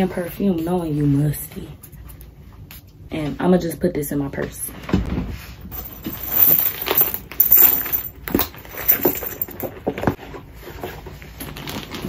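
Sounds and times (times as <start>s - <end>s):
handbags rustling: 5.6s - 9.7s.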